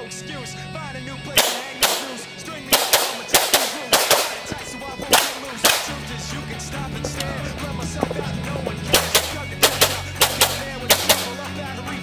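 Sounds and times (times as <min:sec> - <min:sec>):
background music: 0:00.0 - 0:12.0
pistol shots: 0:01.4 - 0:06.1, 0:08.9 - 0:11.5.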